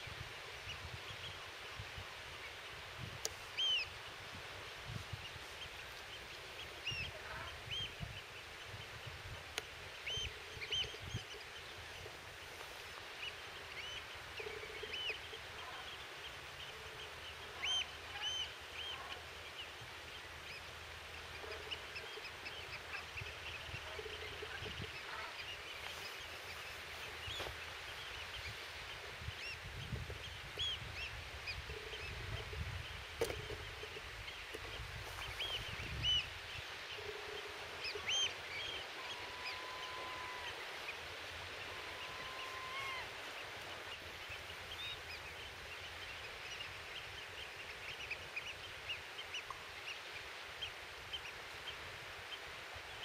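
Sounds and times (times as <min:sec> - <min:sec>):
steady hiss: 0:00.0 - 0:53.0
birds calling: 0:09.6 - 0:50.0.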